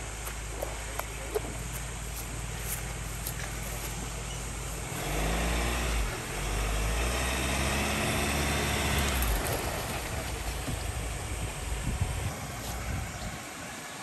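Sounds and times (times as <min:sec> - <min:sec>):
pickup truck engine revving: 0:04.4 - 0:11.6.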